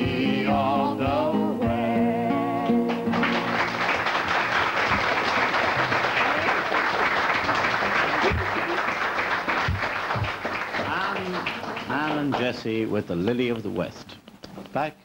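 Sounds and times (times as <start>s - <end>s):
held note of song with guitar: 0.0s - 3.8s
audience applauding: 2.8s - 12.8s.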